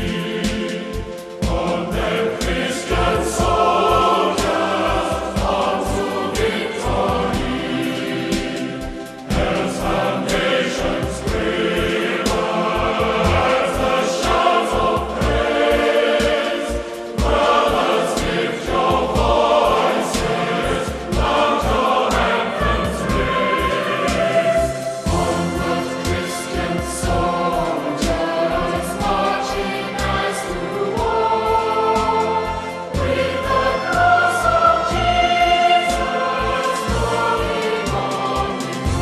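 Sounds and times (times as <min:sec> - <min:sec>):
choir singing a hymn: 0:00.0 - 0:39.0.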